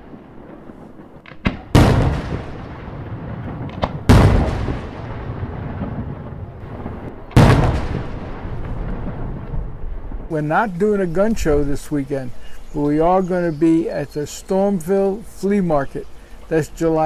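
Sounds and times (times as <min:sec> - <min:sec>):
firework shells booming: 0:00.0 - 0:10.3
sharp firework crack: 0:00.0 - 0:10.3
rumbling echo: 0:00.7 - 0:10.4.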